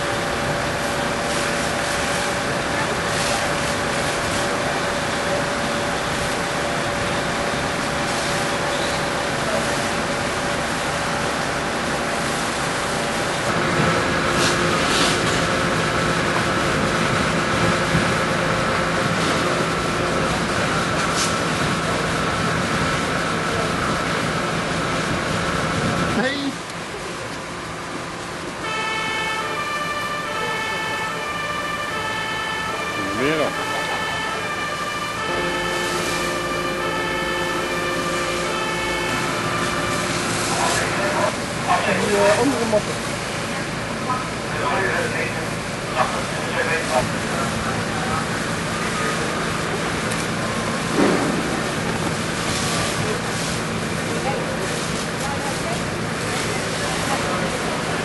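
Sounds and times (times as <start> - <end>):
fire engine pump running: 0.0 - 58.0
two-tone siren: 28.6 - 42.5.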